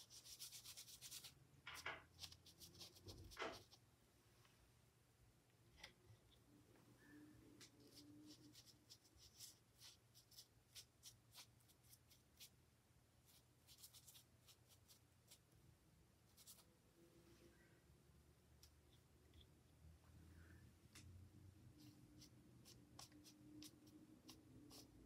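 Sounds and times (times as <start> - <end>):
low room hum: 0.0 - 25.0
ink brush strokes on paper: 7.1 - 12.5, 21.7 - 25.0.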